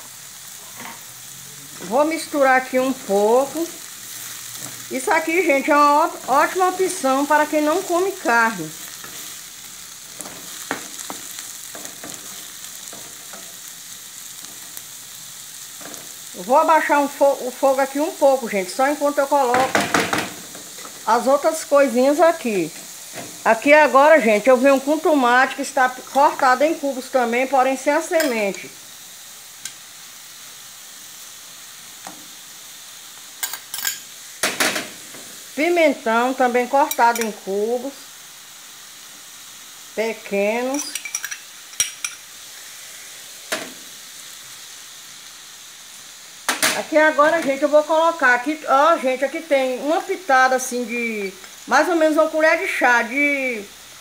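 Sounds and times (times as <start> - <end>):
vegetables sizzling in a pan: 0.0 - 54.0
spatula scraping and tapping pan: 40.7 - 42.2.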